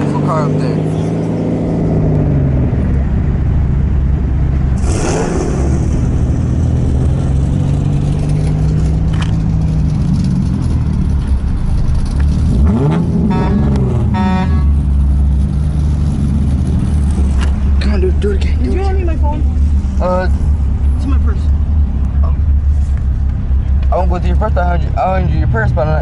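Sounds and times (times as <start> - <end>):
car interior engine and road hum: 0.0 - 26.0
brief whoosh: 4.8 - 7.6.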